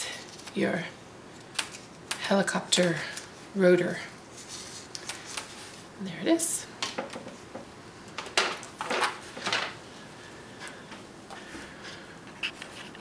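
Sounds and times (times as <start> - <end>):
paper crinkling: 4.3 - 5.8.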